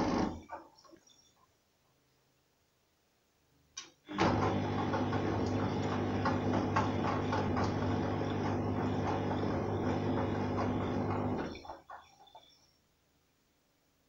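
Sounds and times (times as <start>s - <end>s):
washing machine motor hum: 0.0s - 0.6s, 4.1s - 12.6s.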